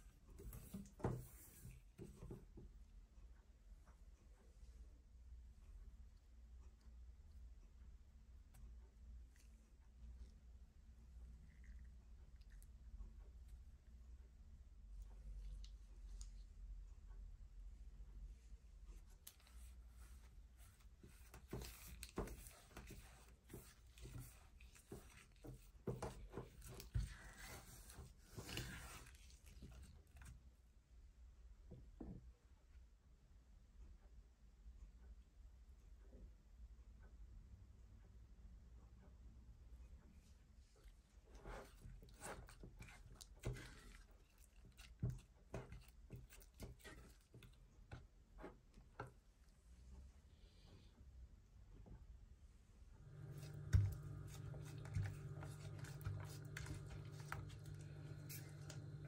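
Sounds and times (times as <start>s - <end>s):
soft squelches of thick mixture: 0.0s - 32.9s, 39.0s - 59.0s
spatula scraping saucepan: 21.1s - 29.4s, 53.2s - 59.0s.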